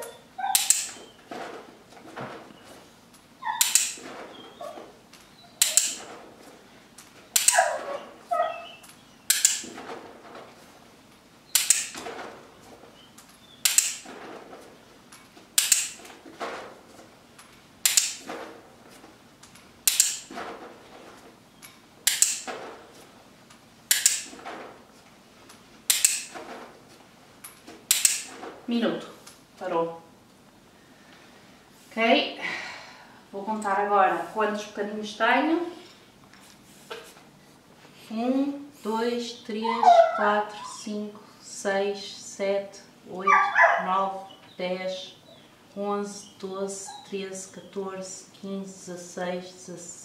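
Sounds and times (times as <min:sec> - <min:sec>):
dog whining faintly: 0:00.0 - 0:01.1, 0:03.4 - 0:06.0, 0:07.4 - 0:08.9, 0:39.6 - 0:41.0, 0:43.3 - 0:44.3.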